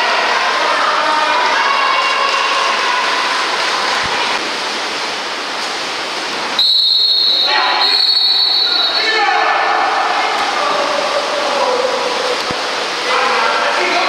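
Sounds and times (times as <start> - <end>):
referee's whistle blasts: 6.6 - 9.2
background voices: 9.3 - 14.0.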